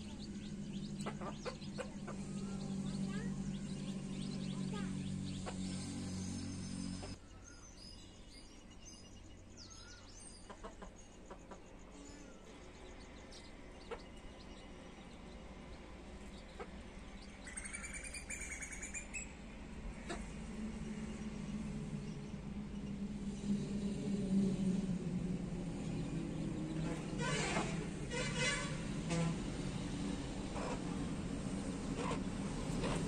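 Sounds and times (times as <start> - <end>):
chicks cheeping: 0.0 - 7.2
low hum: 0.0 - 7.2, 18.7 - 33.0.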